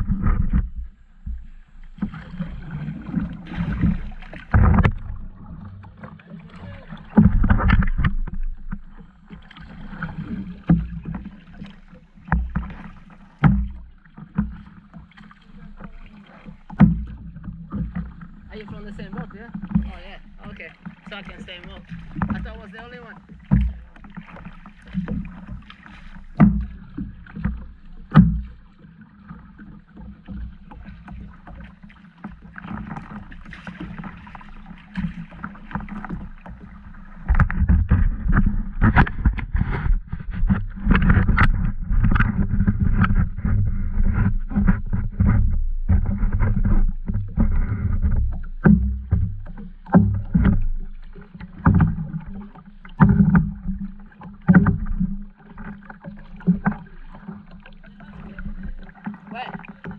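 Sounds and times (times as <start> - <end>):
paddle knocking on plastic hull: 0.0 - 59.9
paddle strokes in water: 0.0 - 59.9.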